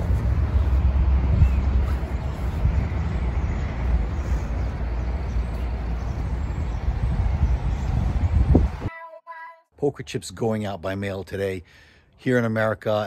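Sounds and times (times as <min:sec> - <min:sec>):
traffic hiss: 0:00.0 - 0:08.9
traffic rumble: 0:00.0 - 0:08.9.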